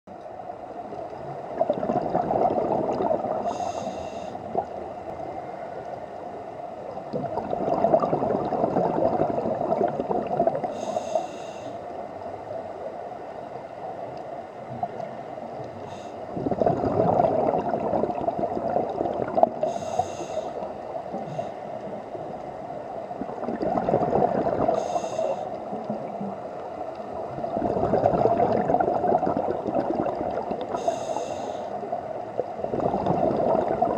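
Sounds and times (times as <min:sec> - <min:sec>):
exhaled bubbles gurgling: 0:00.2 - 0:05.9, 0:06.8 - 0:11.3, 0:14.6 - 0:33.9
regulator inhalation hiss: 0:03.4 - 0:04.5, 0:10.7 - 0:11.9, 0:19.7 - 0:21.7, 0:24.7 - 0:25.6, 0:30.7 - 0:31.8.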